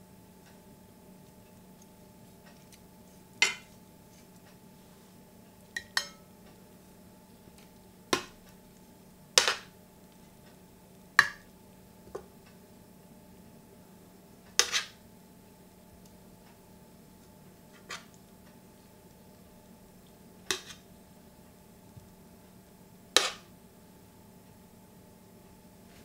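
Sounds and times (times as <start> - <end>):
faint steady hum: 0.0 - 26.0
metal tongs clinking: 5.8 - 6.3.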